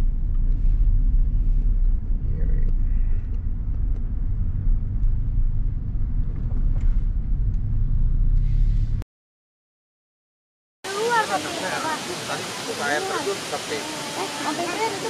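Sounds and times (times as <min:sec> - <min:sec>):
car driving heard from inside: 0:00.0 - 0:09.0.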